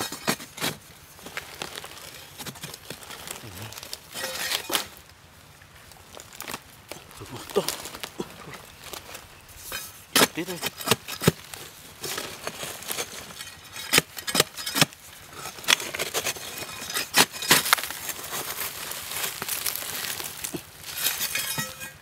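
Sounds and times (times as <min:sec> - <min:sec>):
dirt crumbling and scattering: 0:00.0 - 0:22.0
digging tool striking hard earth: 0:09.6 - 0:18.6.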